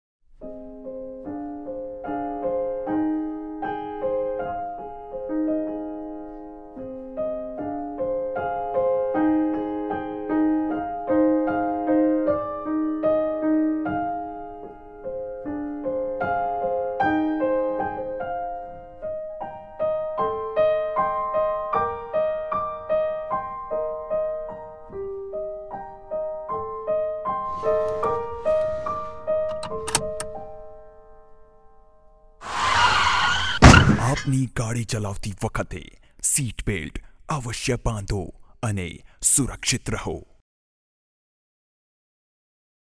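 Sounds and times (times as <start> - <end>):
slow gentle piano melody: 0.3 - 32.4
short hissing noise: 27.4 - 29.5.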